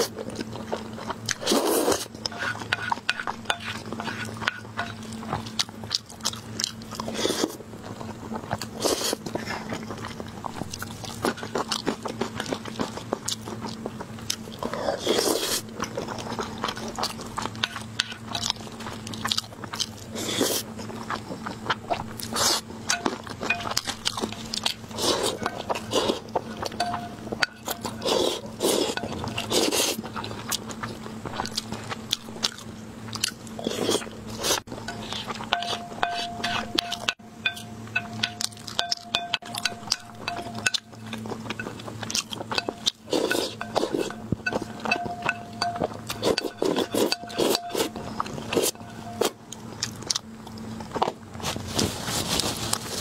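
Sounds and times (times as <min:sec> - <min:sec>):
faint steady hum: 0:00.0 - 0:53.0
slurping: 0:01.3 - 0:04.6, 0:14.6 - 0:17.2, 0:23.7 - 0:26.8, 0:27.4 - 0:31.7, 0:33.6 - 0:37.2, 0:39.9 - 0:45.4, 0:46.0 - 0:49.4
wooden spoon scraping a plate: 0:01.4 - 0:05.4, 0:33.7 - 0:38.4, 0:42.5 - 0:49.3.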